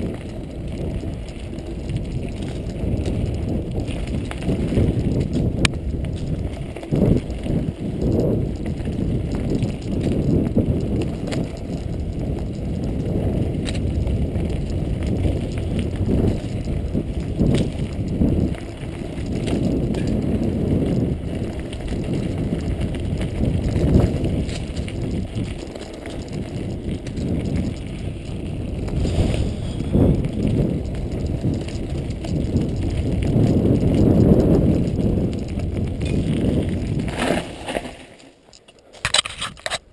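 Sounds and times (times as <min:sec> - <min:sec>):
bike clicks and rattles: 0:00.0 - 0:39.9
bike tyres rumbling on gravel: 0:00.0 - 0:39.9.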